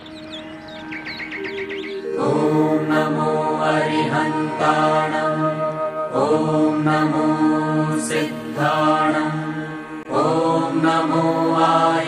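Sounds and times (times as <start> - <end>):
person chanting in long notes: 0.0 - 12.0.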